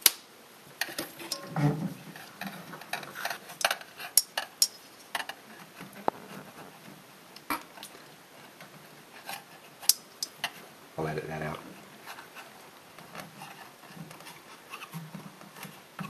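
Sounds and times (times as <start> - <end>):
small clicks and rattles of handled parts: 2.1 - 6.4, 7.4 - 10.6.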